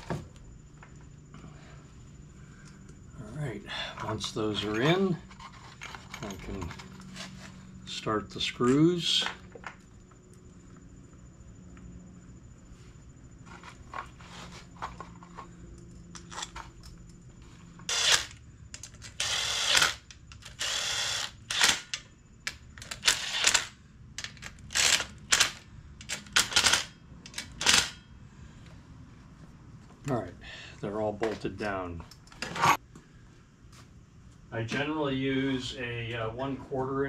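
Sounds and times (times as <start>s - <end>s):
cordless driver running: 17.9s - 18.3s, 19.2s - 21.7s.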